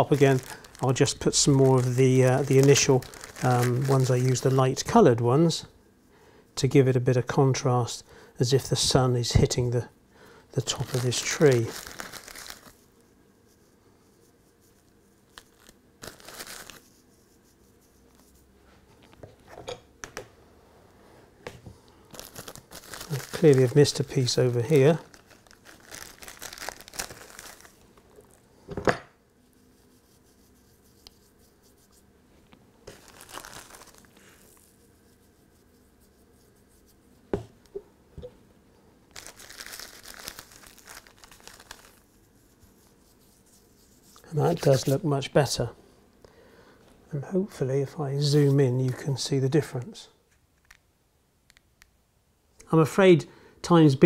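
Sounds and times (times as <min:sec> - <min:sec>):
faint plastic bag crinkling: 0:00.0 - 0:05.2, 0:10.6 - 0:12.9, 0:15.3 - 0:17.0, 0:22.0 - 0:28.5, 0:32.8 - 0:35.0, 0:39.1 - 0:45.1.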